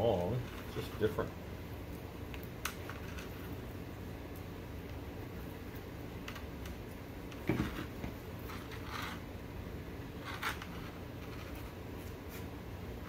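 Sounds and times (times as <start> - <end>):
steady low hum: 0.0 - 13.0
rustles and scrapes of handling: 0.1 - 1.3, 7.4 - 9.4, 10.1 - 13.0.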